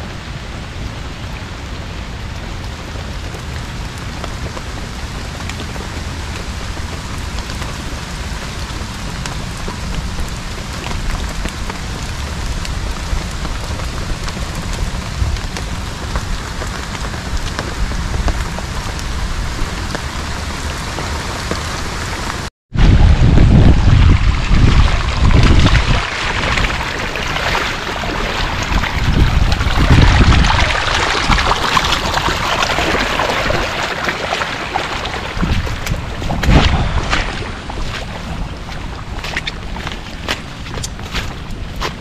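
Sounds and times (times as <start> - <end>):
low rumbling gusts: 0.0 - 42.0
steady rain falling: 0.0 - 42.0.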